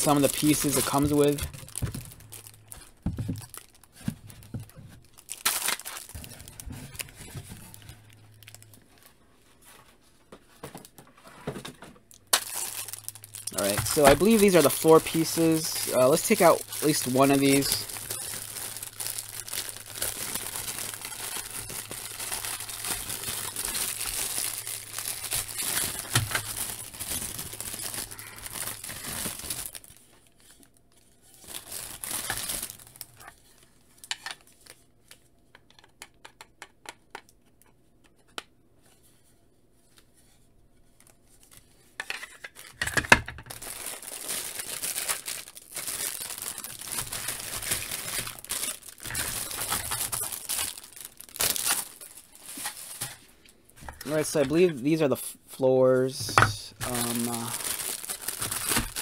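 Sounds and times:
plastic wrapping crinkling and tearing: 0:00.0 - 0:09.2, 0:12.1 - 0:35.2, 0:40.9 - 0:54.7, 0:56.1 - 0:59.0.

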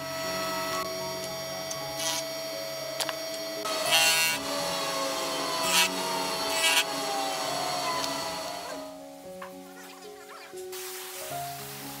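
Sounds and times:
power tool cutting wood: 0:00.0 - 0:08.9.

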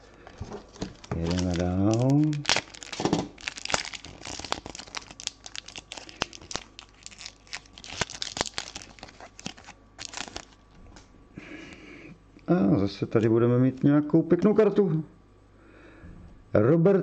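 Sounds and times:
foil wrapper tearing and crinkling: 0:00.4 - 0:10.7.

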